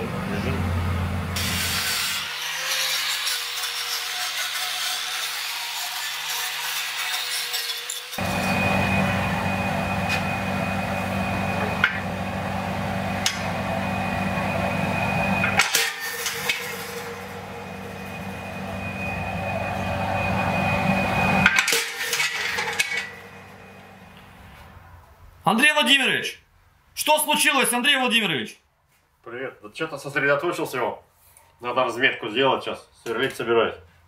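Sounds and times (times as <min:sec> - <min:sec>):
machine hum: 0:00.0 - 0:02.0, 0:08.2 - 0:24.8.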